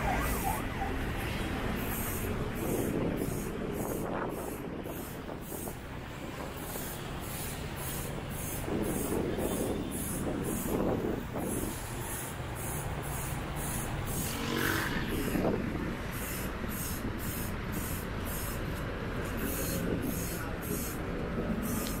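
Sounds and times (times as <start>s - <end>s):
loud vehicle passing: 0.0s - 4.2s, 12.9s - 16.7s
road traffic noise: 0.0s - 22.0s.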